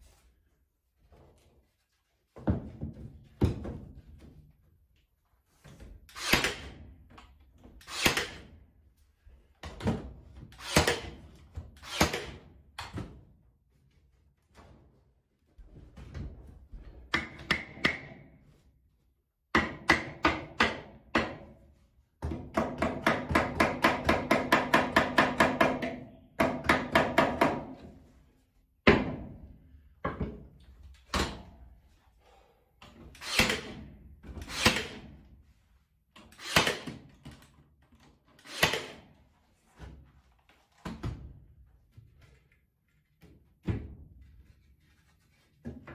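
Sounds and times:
nail gun shots: 0:06.1 - 0:06.8, 0:07.8 - 0:08.5, 0:10.6 - 0:11.2, 0:11.8 - 0:12.4, 0:33.2 - 0:33.8, 0:34.4 - 0:35.1, 0:36.4 - 0:37.1, 0:38.4 - 0:39.1
hammer striking nails into wood: 0:17.1 - 0:18.3, 0:19.5 - 0:21.5, 0:22.2 - 0:27.8.

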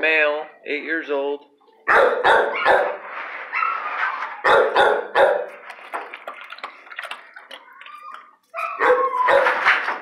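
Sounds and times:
dogs barking: 0:01.8 - 0:03.0, 0:04.4 - 0:05.6, 0:08.5 - 0:09.8.

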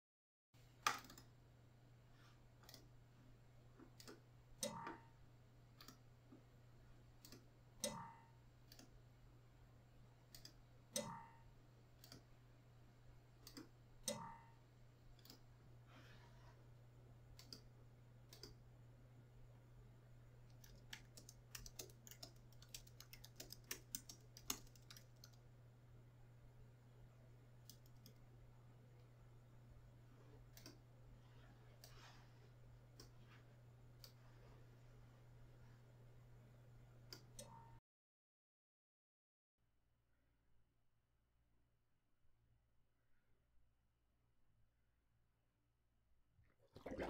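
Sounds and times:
keyboard clicking: 0:00.8 - 0:01.3, 0:20.5 - 0:25.4.

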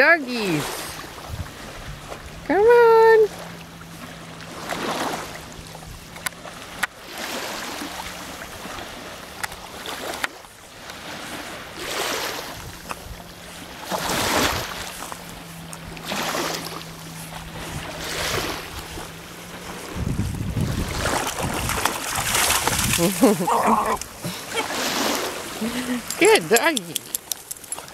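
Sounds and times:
water sloshing around swimming dogs: 0:00.3 - 0:27.9
sharp clicks: 0:26.0 - 0:27.9.

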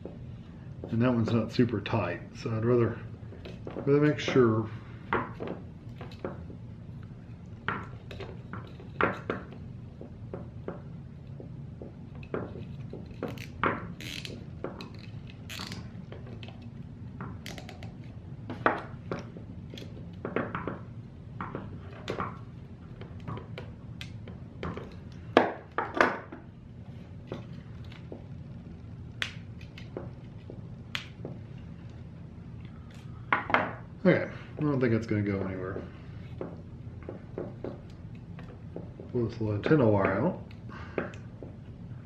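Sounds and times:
low steady hum: 0:00.0 - 0:42.0.

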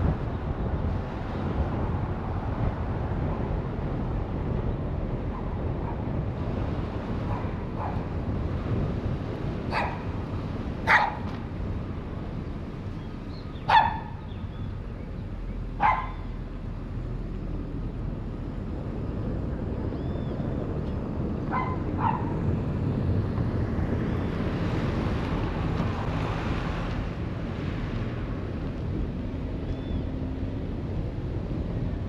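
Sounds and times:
car driving rumble: 0:00.0 - 0:32.0
dog barking: 0:09.7 - 0:10.1, 0:10.9 - 0:11.2, 0:13.7 - 0:14.2, 0:15.8 - 0:16.3, 0:21.5 - 0:22.4.

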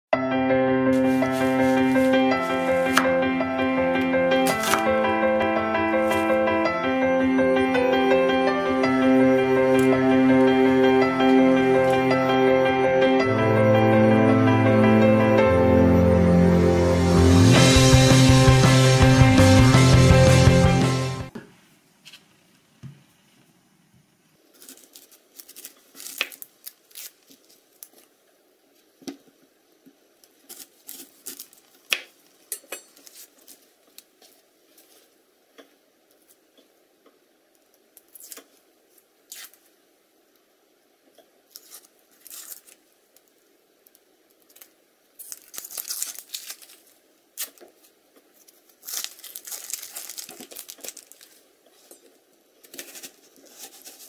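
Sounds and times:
onion skin rustling and tearing: 0:04.4 - 0:04.9, 0:24.5 - 0:28.2, 0:30.2 - 0:35.1, 0:38.0 - 0:39.8, 0:41.4 - 0:54.0
onion skin crackling: 0:04.4 - 0:05.0, 0:24.4 - 0:28.2, 0:30.2 - 0:35.1, 0:38.0 - 0:39.8, 0:41.4 - 0:54.0.

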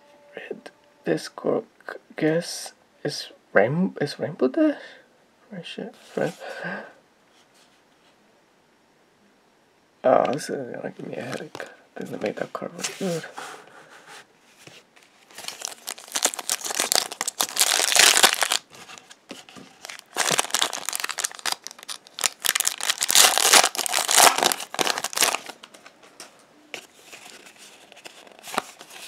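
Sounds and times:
cards rustling: 0:14.6 - 0:29.0
foil wrapper crinkling: 0:15.2 - 0:25.8.

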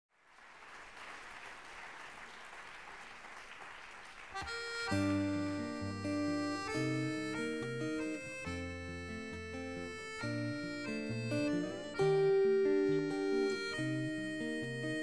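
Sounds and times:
button accordion chords: 0:04.4 - 0:15.0.

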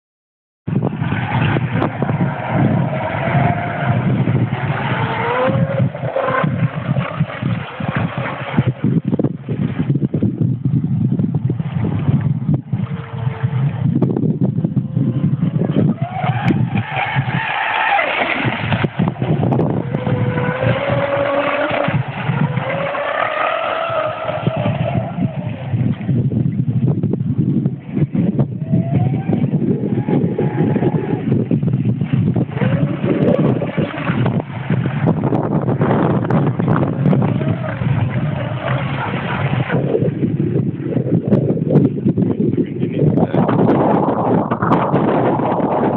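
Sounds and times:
low rumble: 0:00.7 - 0:45.9
wind on microphone: 0:00.7 - 0:45.9
electric motor whining: 0:01.1 - 0:08.8, 0:14.8 - 0:25.8.

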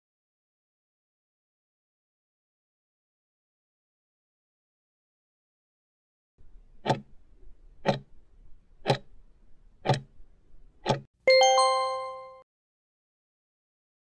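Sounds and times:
clock ticking: 0:06.8 - 0:07.2, 0:07.8 - 0:08.2, 0:08.8 - 0:09.2, 0:09.8 - 0:10.2, 0:10.8 - 0:11.1
bell chime: 0:11.3 - 0:12.4.

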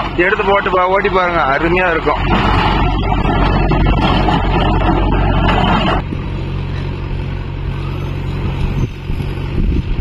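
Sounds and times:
rotavator churning soil: 0:00.0 - 0:06.0
diesel tractor engine running: 0:00.0 - 0:10.0.

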